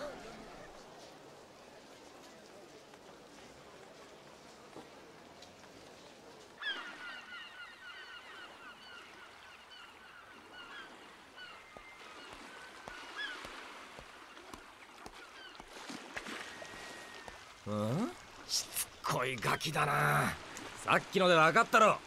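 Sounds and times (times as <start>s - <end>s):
seagulls calling: 6.6s - 22.0s.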